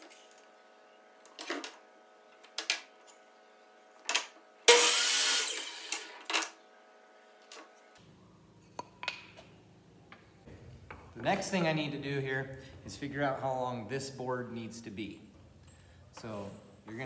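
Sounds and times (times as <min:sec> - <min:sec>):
miter saw cutting board: 0:04.7 - 0:06.1.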